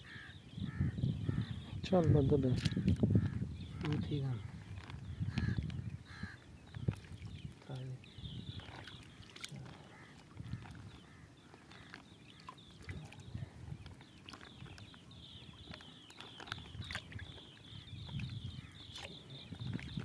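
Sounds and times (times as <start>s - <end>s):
water sloshing in plastic bag: 2.4s - 20.0s.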